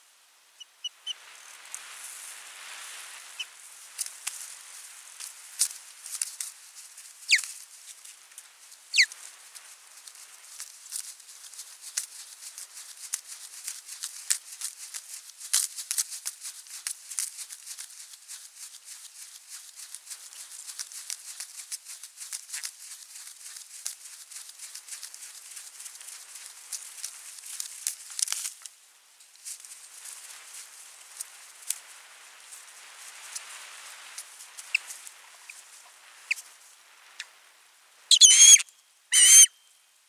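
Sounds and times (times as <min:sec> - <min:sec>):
clicking and crackling of nest sticks: 0:03.9 - 0:36.5
sharp falling bird whistles: 0:38.1 - 0:39.6.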